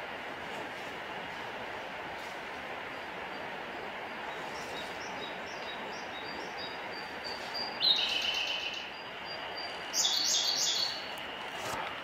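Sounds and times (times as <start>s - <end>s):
steady rushing noise: 0.0s - 12.0s
bird singing trilled phrases: 4.3s - 11.1s.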